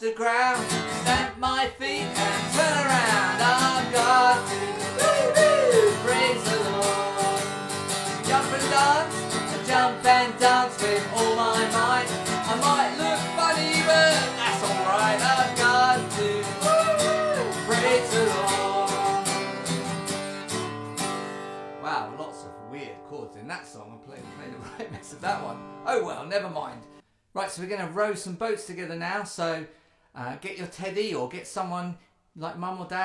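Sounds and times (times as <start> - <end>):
voices singing children's song: 0.0 - 19.5
acoustic guitar strumming: 0.5 - 27.0.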